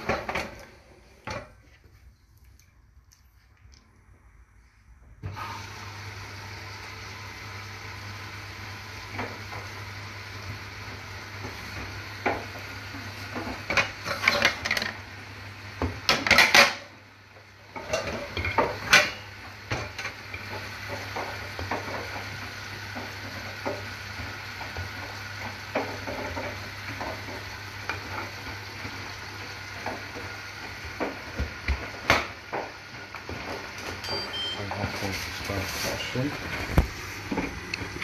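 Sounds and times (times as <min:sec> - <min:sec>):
dishes and pans clattering: 0:13.3 - 0:15.0, 0:16.1 - 0:16.9, 0:17.7 - 0:22.2, 0:33.3 - 0:34.6.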